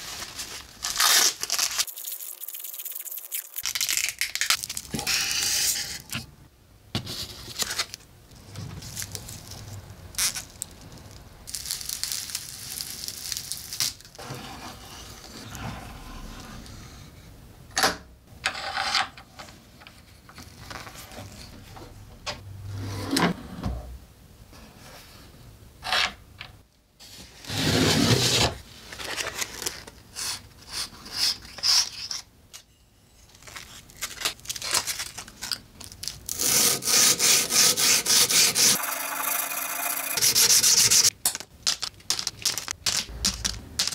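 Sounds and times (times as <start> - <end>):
sanding metal by hand: 36.4 - 38.8, 40.2 - 41.1.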